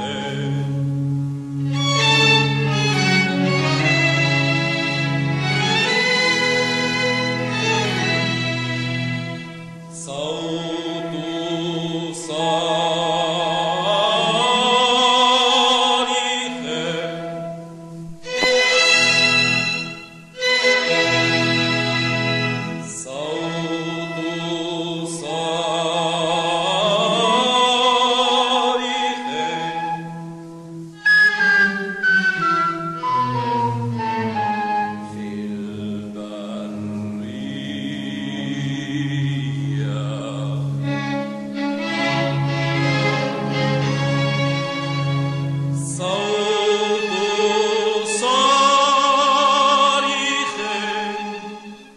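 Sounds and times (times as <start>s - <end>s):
choir singing chant: 10.0s - 17.5s, 20.8s - 30.1s, 34.3s - 51.9s.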